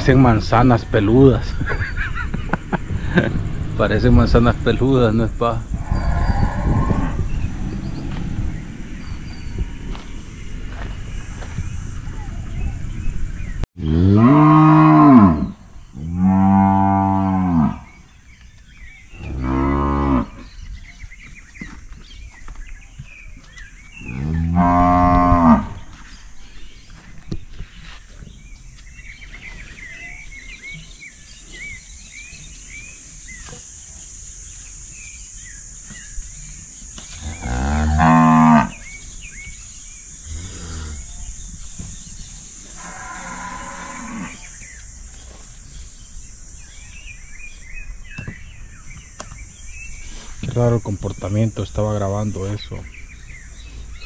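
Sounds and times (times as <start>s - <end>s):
cattle mooing: 37.2s - 38.8s.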